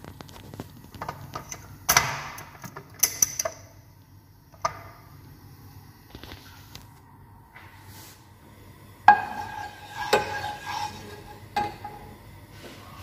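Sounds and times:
metal ladle scraping a pot: 9.1 - 11.8.

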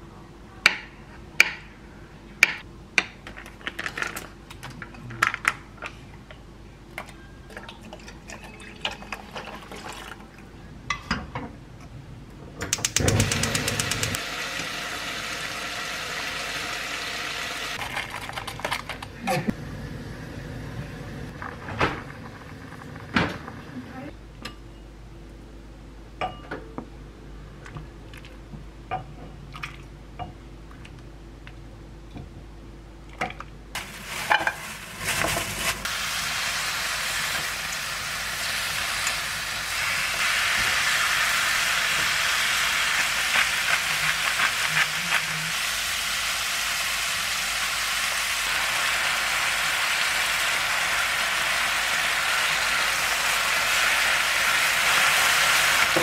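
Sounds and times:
gas stove igniter clicking: 12.6 - 14.2
gas burner rushing: 12.7 - 17.8
steady low hum: 18.9 - 33.8.

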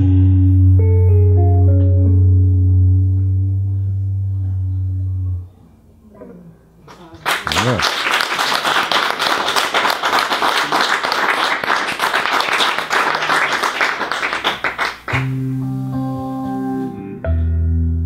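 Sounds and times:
electric guitar held notes: 0.0 - 6.6, 15.1 - 18.0
audience applause: 7.2 - 15.4.

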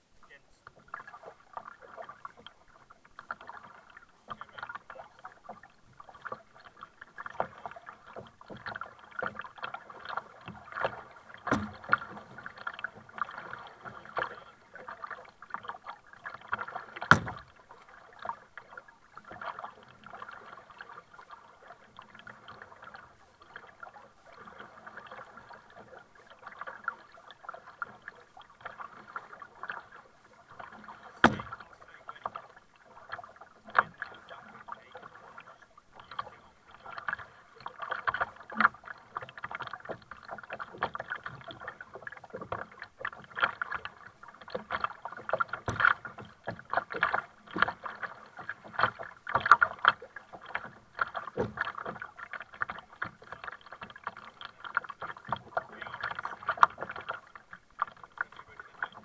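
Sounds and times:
paddle splashing: 0.0 - 59.0
water slapping hull: 0.0 - 59.0
sharp knocks: 17.1 - 17.4, 31.2 - 31.6.

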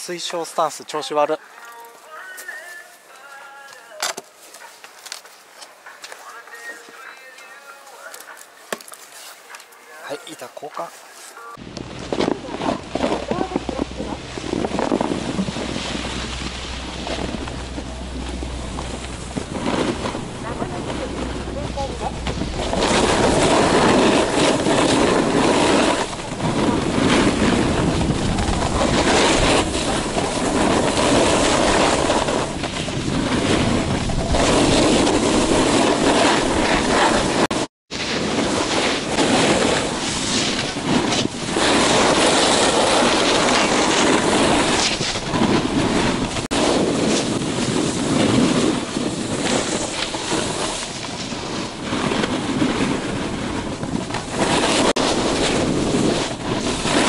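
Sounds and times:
snowboard scraping over snow: 7.9 - 57.0
wind on microphone: 11.6 - 57.0.

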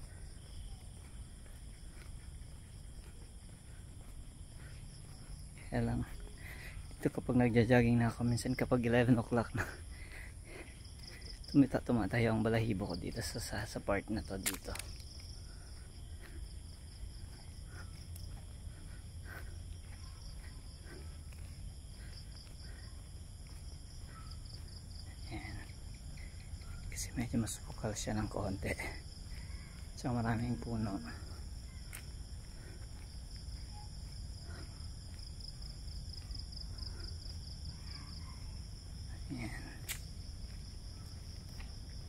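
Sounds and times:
wind rumble: 0.0 - 5.6
footsteps on path: 0.0 - 42.0
night insects chirring: 0.0 - 42.0.

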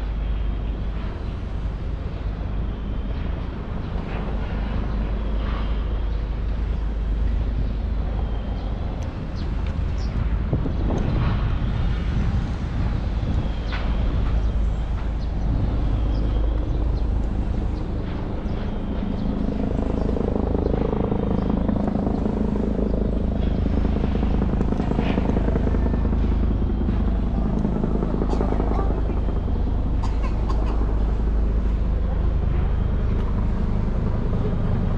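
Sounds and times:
vehicle engines: 0.0 - 34.9.

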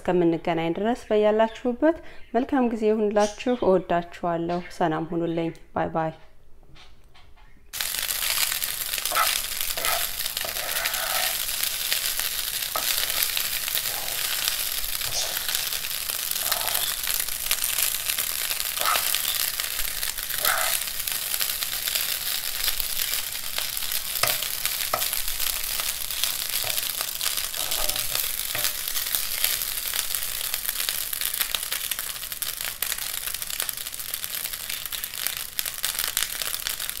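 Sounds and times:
egg sizzling in a frying pan: 7.8 - 37.0
metal spoon scraping a pan: 9.1 - 11.5, 12.7 - 15.7, 18.8 - 19.4, 24.2 - 29.4.

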